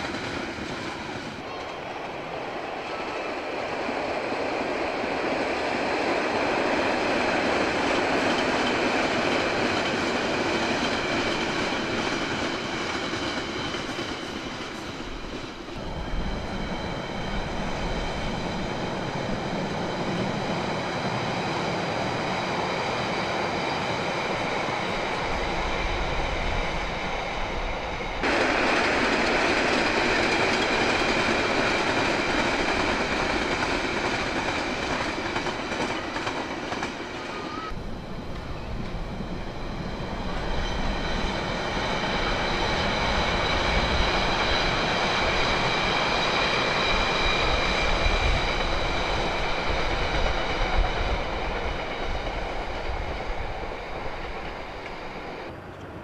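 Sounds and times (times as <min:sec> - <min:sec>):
train wheels rushing on rails: 0:00.0 - 0:56.0.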